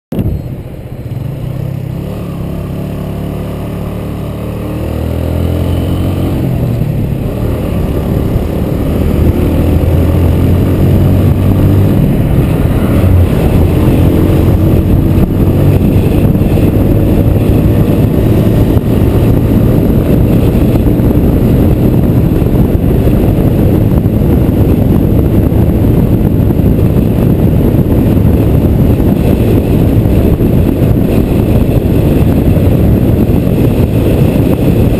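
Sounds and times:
motorcycle engine accelerating: 0.1 - 34.9
wind rushing on microphone: 0.1 - 34.9.

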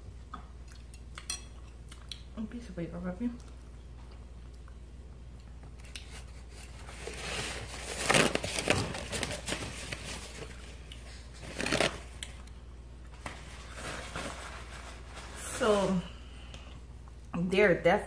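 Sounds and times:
paper towel tearing and crinkling: 6.1 - 12.1.

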